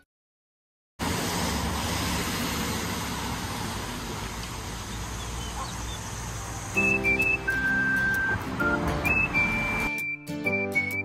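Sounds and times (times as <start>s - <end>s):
road traffic: 1.0s - 11.0s.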